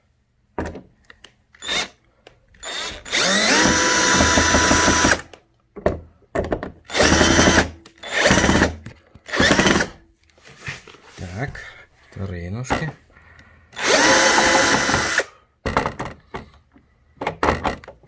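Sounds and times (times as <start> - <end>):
cordless drill whining: 1.6 - 5.4, 6.9 - 10.0, 13.7 - 15.3.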